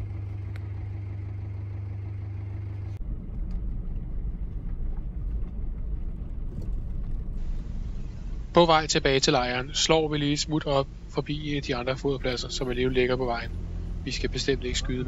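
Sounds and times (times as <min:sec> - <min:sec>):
car engine idling: 0:00.0 - 0:15.0
car driving on gravel: 0:02.8 - 0:15.0.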